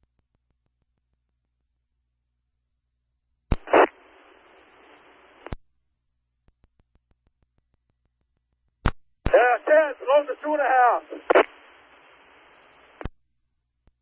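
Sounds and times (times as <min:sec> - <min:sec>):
radio static hiss: 0:03.5 - 0:05.6, 0:09.3 - 0:13.1
radio transmission click: 0:03.5 - 0:05.6, 0:09.2 - 0:13.2.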